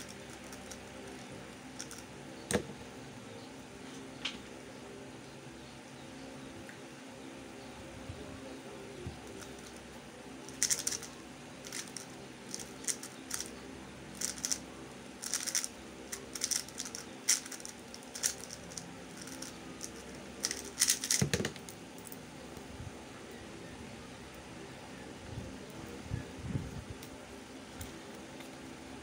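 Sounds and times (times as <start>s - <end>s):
plastic puzzle cube clicking: 10.5s - 11.1s, 14.2s - 14.6s, 15.2s - 21.6s
cube thumping on table: 21.0s - 21.6s.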